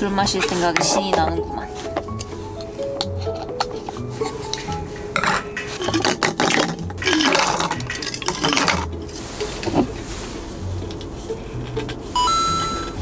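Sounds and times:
ice cubes rattling into glass: 5.7s - 8.9s.

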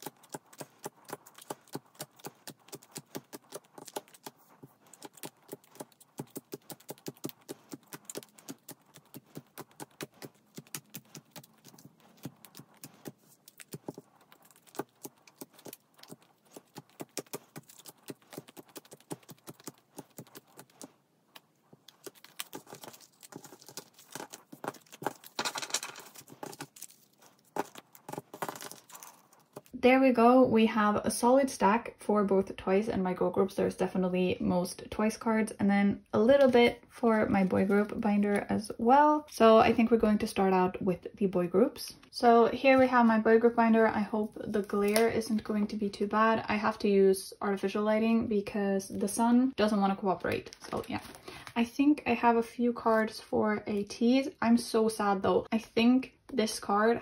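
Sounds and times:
plastic rustle: 50.4s - 51.6s.

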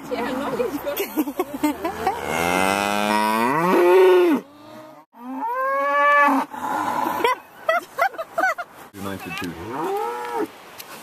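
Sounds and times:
cow mooing: 2.1s - 7.2s.

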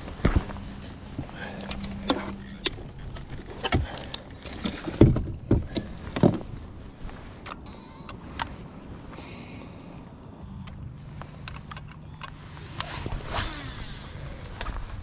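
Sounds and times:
knocks and clunks on boat deck: 1.8s - 6.6s.

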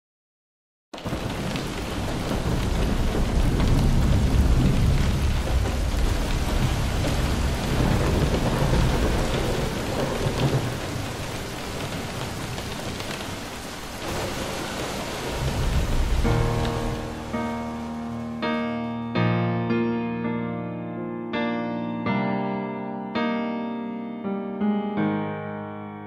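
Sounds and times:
low roll of thunder: 1.0s - 18.6s
steady rain: 1.0s - 19.1s.

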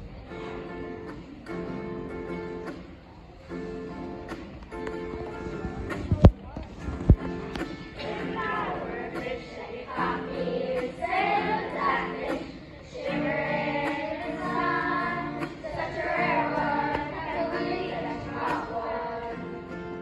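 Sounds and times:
acoustic guitar: 0.0s - 20.0s
children singing: 7.0s - 20.0s.

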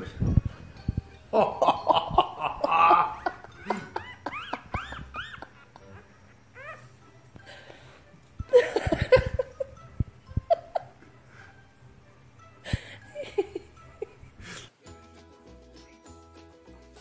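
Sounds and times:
person laughing: 1.3s - 6.1s, 8.5s - 9.7s.

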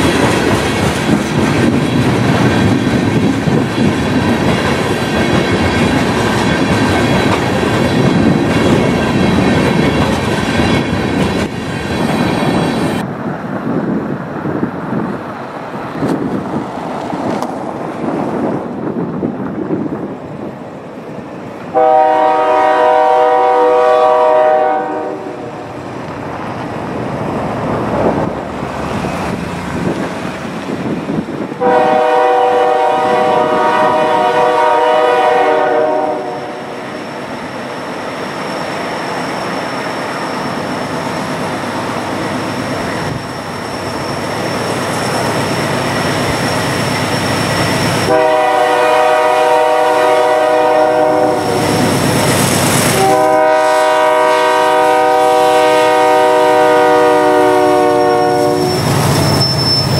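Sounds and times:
diesel locomotive engine under load: 0.0s - 59.9s
wheels rumbling on rails: 0.0s - 59.9s
locomotive air horn blasts: 21.7s - 25.6s, 31.6s - 36.8s, 48.0s - 51.8s, 52.9s - 59.0s.

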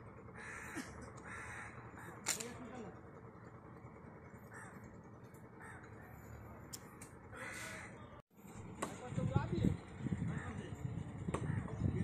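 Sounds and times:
crow cawing faintly: 0.3s - 2.4s, 4.4s - 8.2s, 10.2s - 11.9s.

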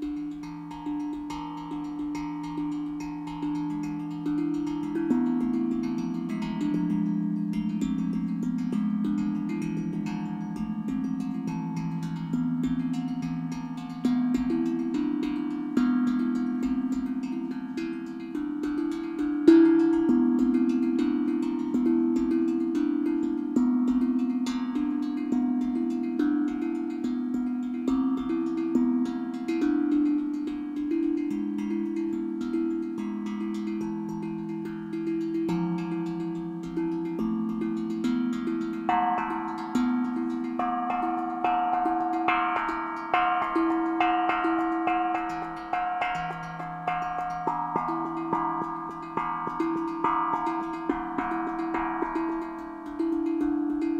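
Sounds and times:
steel tongue drum melody: 0.0s - 53.9s.

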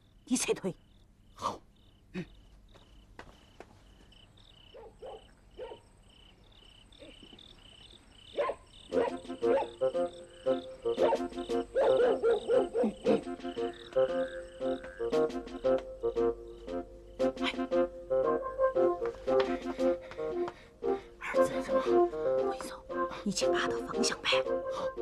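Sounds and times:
crickets chirping: 0.0s - 25.0s
background music: 8.9s - 25.0s.

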